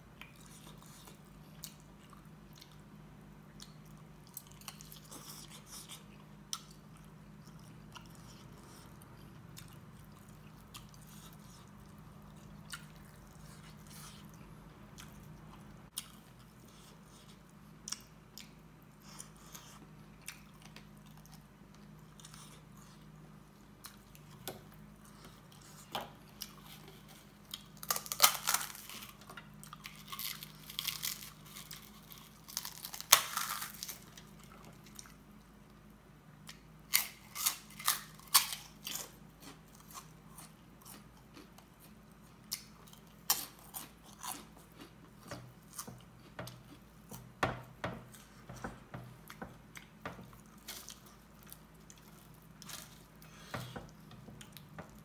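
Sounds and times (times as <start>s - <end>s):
faint steady hum: 0.0s - 55.0s
crunchy snacks being chewed: 23.8s - 35.2s, 36.5s - 47.3s.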